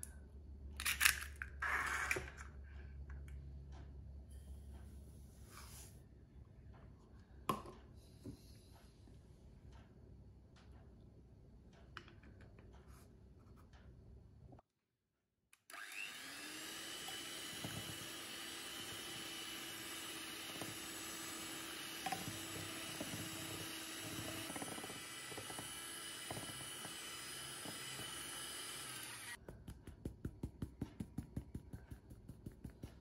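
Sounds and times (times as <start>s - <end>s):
electric hand mixer whisking: 15.7s - 29.5s.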